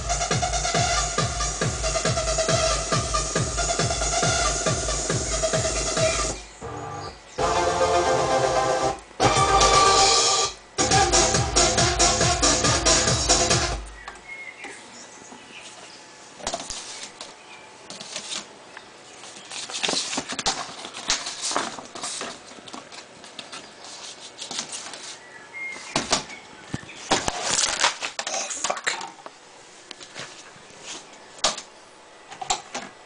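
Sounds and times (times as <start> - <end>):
record sleeves rustling: 19.1 - 25.8.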